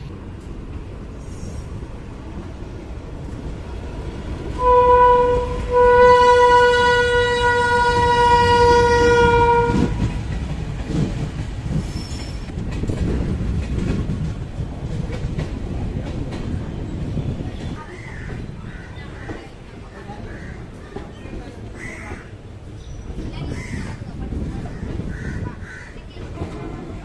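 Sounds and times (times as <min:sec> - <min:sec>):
train rumble and wheel clatter: 0:00.0 - 0:27.0
locomotive horn blasts: 0:04.6 - 0:10.1.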